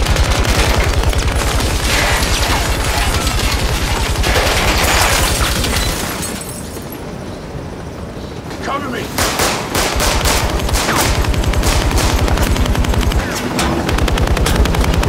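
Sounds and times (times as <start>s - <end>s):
automatic gunfire: 0.0s - 5.2s, 9.2s - 15.0s.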